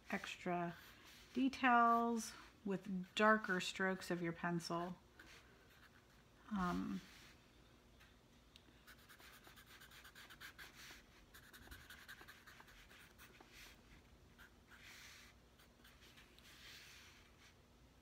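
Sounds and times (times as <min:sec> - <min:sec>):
marker scratching on paper: 0:08.9 - 0:17.5.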